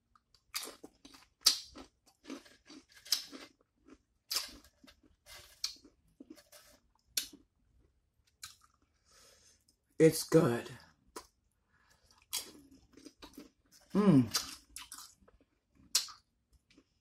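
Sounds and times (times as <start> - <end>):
person chewing crunchy chip: 0.1 - 7.5, 11.1 - 17.0.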